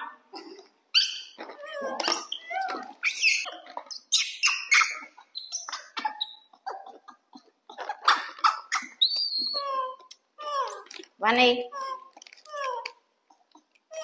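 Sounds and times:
baby monkeys squeaking: 0.9 - 11.0.

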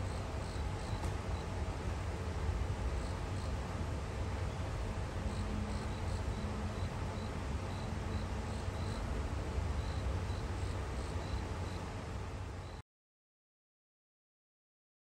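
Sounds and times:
insect chirping: 0.1 - 1.4, 5.3 - 9.1, 9.8 - 11.8.

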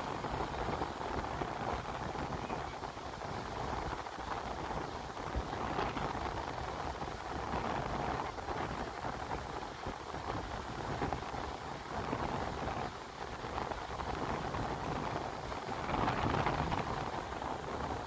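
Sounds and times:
wind rushing across microphone: 0.0 - 18.0.

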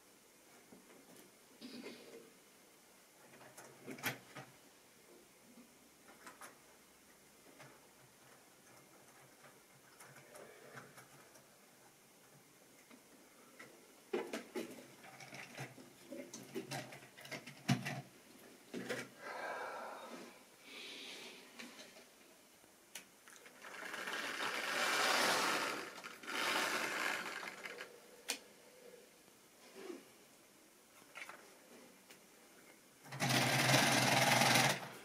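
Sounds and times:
small electric motor whirring: 23.8 - 27.8.

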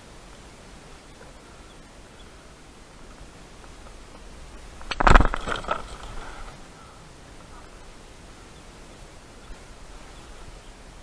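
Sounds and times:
faint outdoor hiss: 0.0 - 11.0
knocks and clatter in kayak: 3.0 - 6.5.

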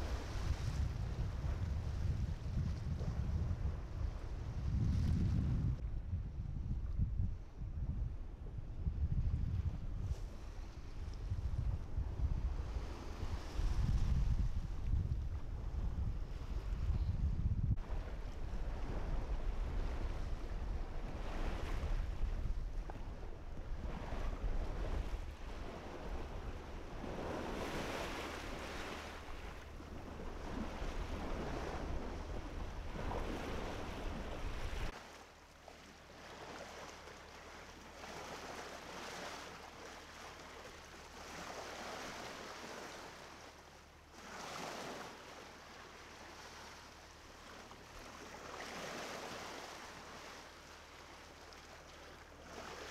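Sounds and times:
wind on microphone: 0.0 - 35.0
water splashing against hull: 17.8 - 52.9.

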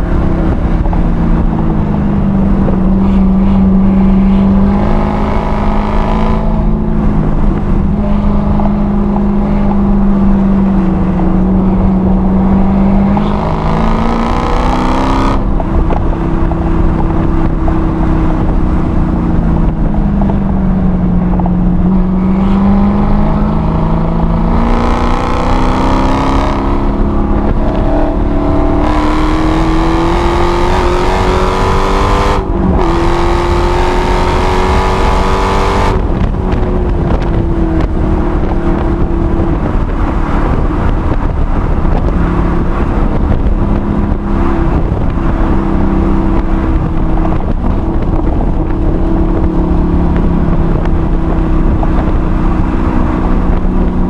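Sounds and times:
car engine revving from inside: 21.1 - 38.8.

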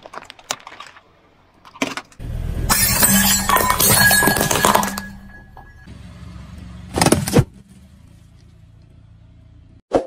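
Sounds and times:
car engine rumble: 2.2 - 9.8.

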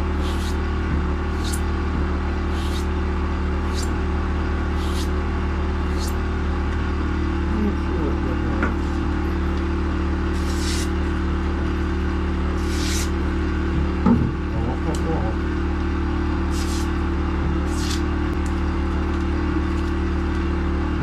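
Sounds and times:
motor hum: 0.0 - 21.0
knife hissing on abrasive belt: 0.1 - 0.6, 1.3 - 1.6, 2.5 - 2.9, 3.6 - 3.9, 4.7 - 5.2, 5.9 - 6.2, 10.3 - 10.9, 12.6 - 13.2, 16.5 - 16.9, 17.6 - 18.0.

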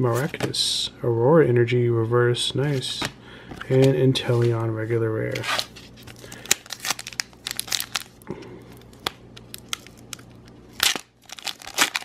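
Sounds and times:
foil pack crinkling: 5.4 - 8.2, 8.8 - 12.0
foil tearing: 5.5 - 8.1, 10.7 - 12.0.

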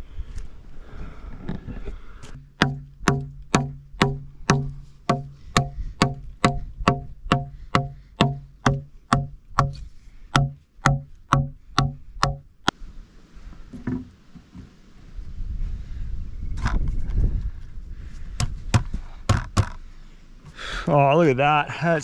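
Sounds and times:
hatchet chopping log: 2.4 - 12.5, 18.4 - 19.8.

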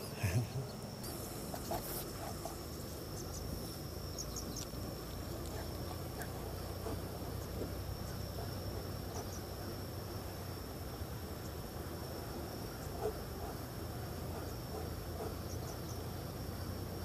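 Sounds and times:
insect trilling: 0.0 - 17.0
faint ticks: 4.2 - 8.2.

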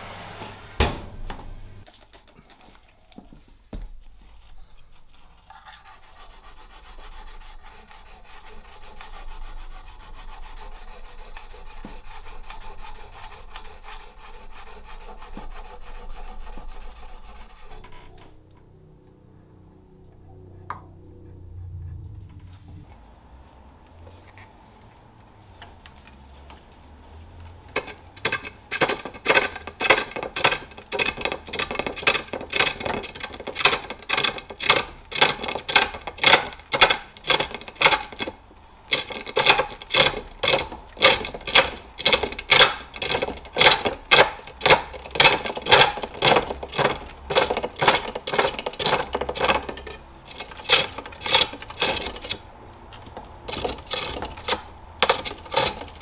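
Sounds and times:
tool scraping wood on lathe: 4.2 - 18.4, 27.6 - 56.0.

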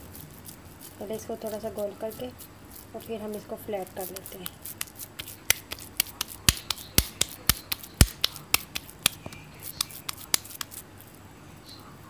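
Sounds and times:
hands slapping meat patty: 4.0 - 10.8.

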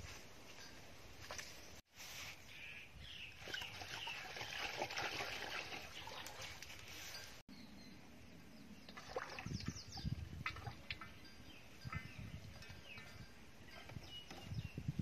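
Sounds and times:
rural outdoor ambience: 0.0 - 15.0
birds chirping: 2.4 - 4.8, 5.6 - 15.0.

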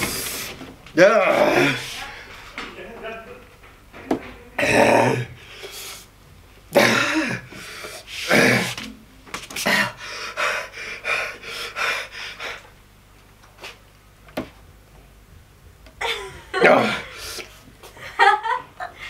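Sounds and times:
man gasping and panting: 9.6 - 12.7, 16.6 - 17.6.

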